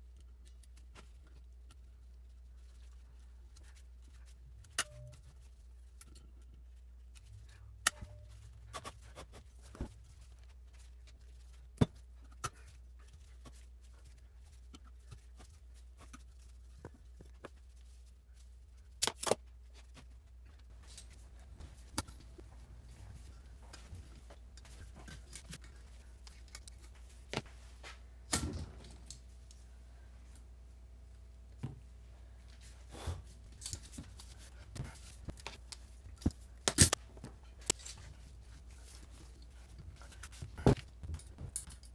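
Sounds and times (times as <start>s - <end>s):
faint low hum: 0.0s - 41.9s
metallic clicks and clinks: 41.0s - 41.9s.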